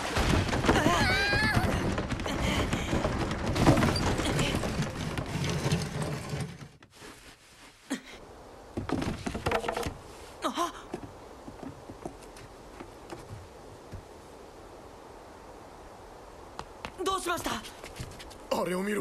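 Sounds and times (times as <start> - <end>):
rushing crashing fall: 0.0 - 6.8.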